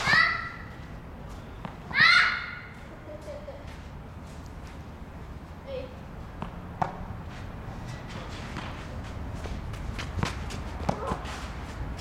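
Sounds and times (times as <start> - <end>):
steady low hum: 0.0 - 12.0
shuffling footsteps: 6.2 - 12.0
tennis ball hitting racket: 6.4 - 7.1, 9.6 - 11.5.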